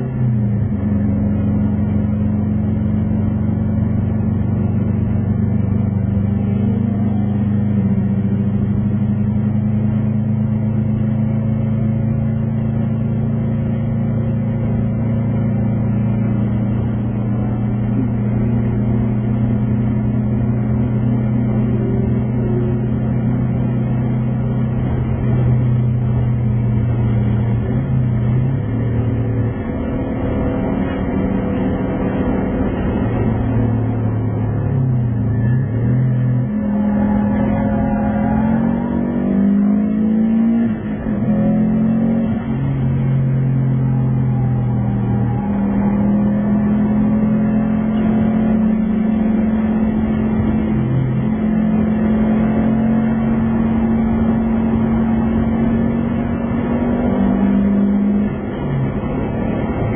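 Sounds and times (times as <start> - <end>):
car engine drone from inside cabin: 0.0 - 59.9.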